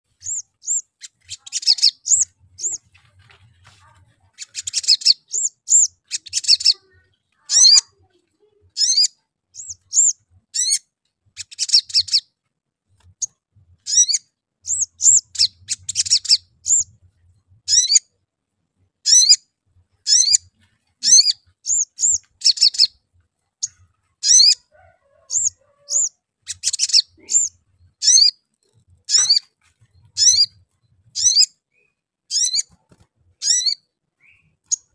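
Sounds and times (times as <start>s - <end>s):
sunbird high chirps: 0.1s - 2.9s, 4.3s - 10.8s, 11.4s - 12.3s, 13.2s - 17.0s, 17.7s - 18.0s, 19.0s - 19.4s, 20.0s - 23.0s, 23.6s - 24.7s, 25.3s - 28.4s, 29.0s - 32.8s, 33.4s - 34.9s
rapid bird chattering: 0.2s - 3.0s, 3.6s - 10.8s, 11.4s - 12.2s, 13.2s - 16.9s, 17.7s - 18.0s, 19.1s - 19.4s, 20.0s - 23.0s, 23.6s - 24.7s, 25.3s - 31.5s, 32.3s - 34.9s.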